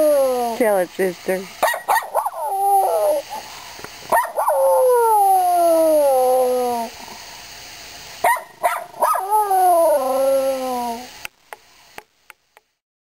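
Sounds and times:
dog yipping: 1.6 - 3.0, 8.2 - 9.3
dog howling: 2.0 - 3.4, 4.2 - 6.9, 8.8 - 11.1.

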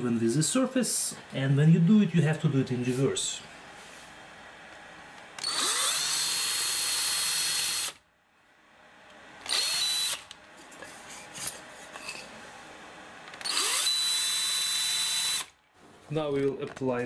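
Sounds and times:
power drill whining: 5.4 - 8.0, 9.4 - 10.3, 13.4 - 15.6.

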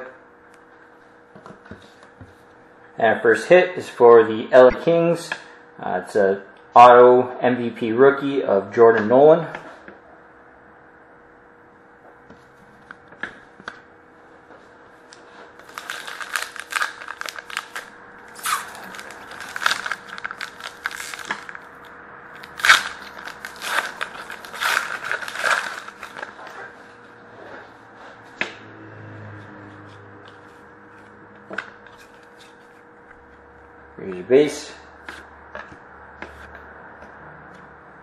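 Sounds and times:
foil wrapper crinkling and tearing: 15.6 - 26.4.

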